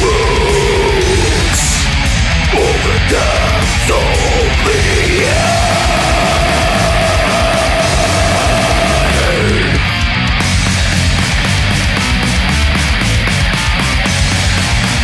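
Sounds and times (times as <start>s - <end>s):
death metal music: 0.0s - 15.0s.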